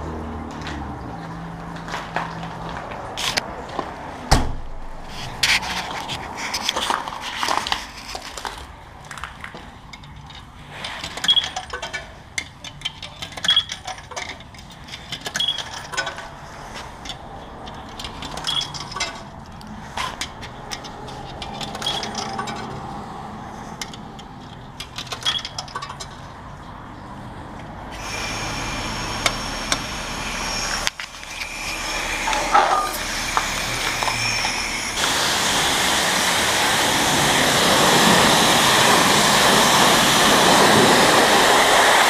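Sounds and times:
coins clinking through slot: 12.8 - 14.4.

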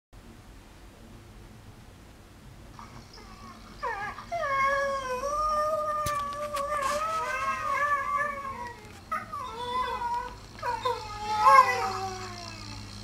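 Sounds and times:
dogs howling: 2.8 - 13.0.

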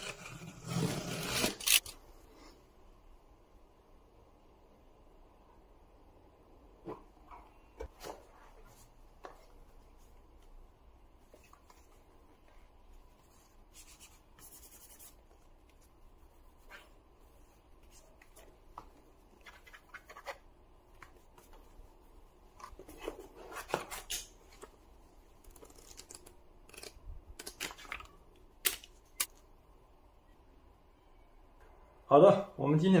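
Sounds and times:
laptop and box handling noise: 22.4 - 29.3.

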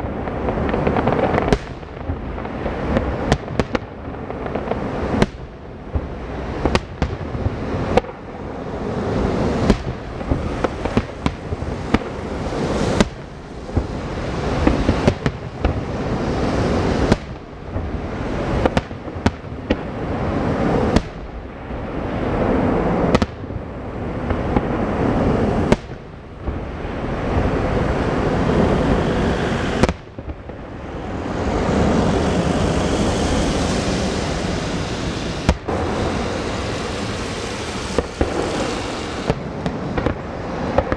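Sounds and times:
rumbling crackle: 0.0 - 40.9
steady hissing noise: 0.0 - 40.9
firework shells bursting: 29.2 - 40.9.

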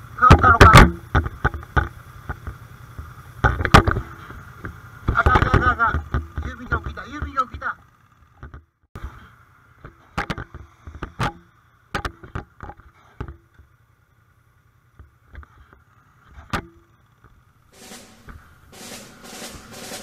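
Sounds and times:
motorcycle engine hum: 0.0 - 20.0
drum-led march music: 17.7 - 20.0.

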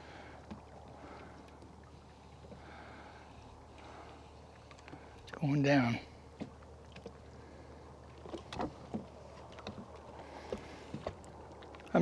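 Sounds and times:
water lapping against boat hull: 0.0 - 12.0
soft ticks and knocks: 0.4 - 2.7, 3.7 - 5.4, 6.3 - 7.3, 8.1 - 12.0.

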